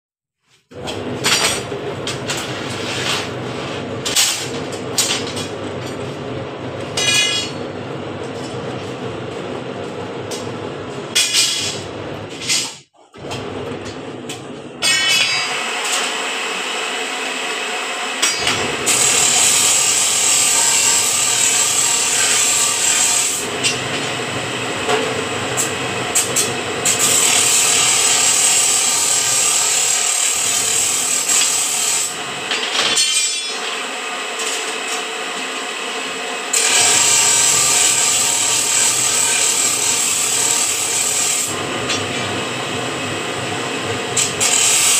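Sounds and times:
steel scraping and grinding: 2.3 - 4.5.

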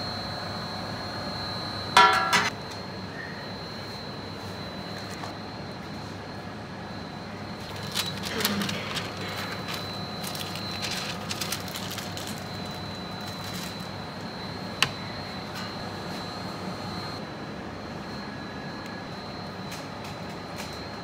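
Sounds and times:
kitchen hum with high whine: 0.0 - 21.0
paper wrappers rustling: 7.6 - 14.0.

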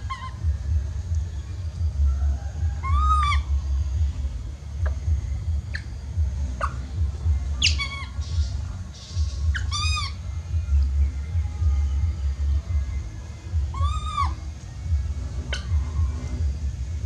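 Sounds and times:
baby monkey crying: 0.0 - 0.6, 2.6 - 3.6, 6.6 - 7.0, 7.6 - 8.6, 9.2 - 10.2, 13.6 - 14.5, 15.4 - 16.2
low rumble: 0.0 - 17.0.

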